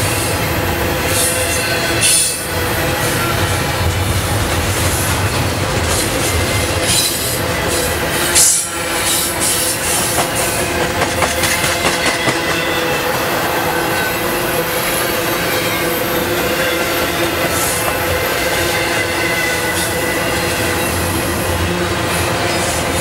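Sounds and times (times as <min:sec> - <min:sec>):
train rumble and rattle: 0:00.0 - 0:23.0
wheels clicking over rail joints: 0:02.9 - 0:12.9.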